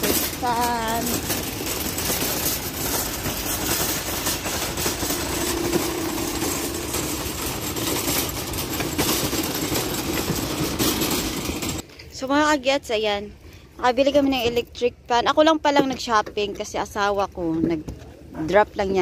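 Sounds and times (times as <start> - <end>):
shopping cart rattling over pavers: 0.0 - 11.9.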